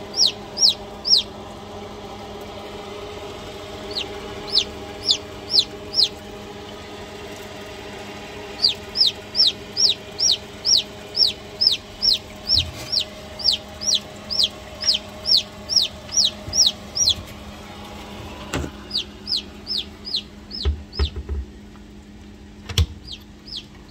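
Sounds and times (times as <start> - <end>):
chicks peeping: 0.0 - 1.4, 3.6 - 6.8, 8.5 - 17.6, 18.8 - 21.3, 22.8 - 23.9
steady low hum: 0.0 - 23.9.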